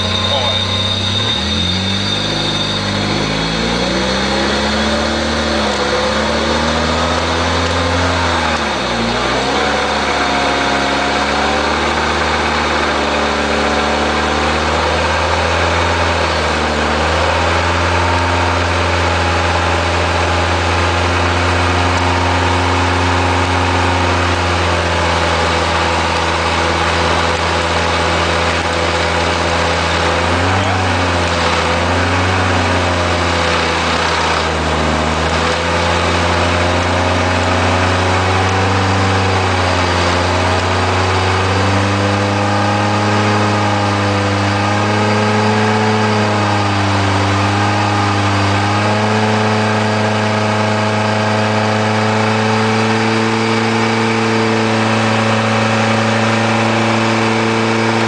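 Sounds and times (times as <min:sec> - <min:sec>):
car engine running: 0:00.0 - 0:58.0.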